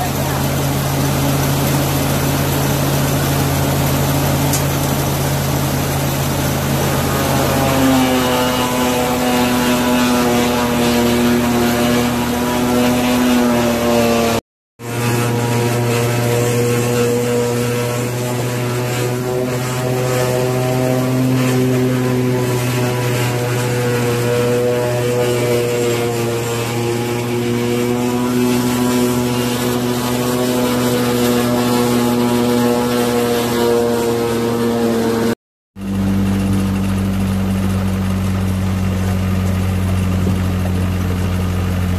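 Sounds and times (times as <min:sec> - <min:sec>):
engine running under load: 0:00.0 - 0:41.9
forage harvester chopping corn: 0:00.0 - 0:41.9.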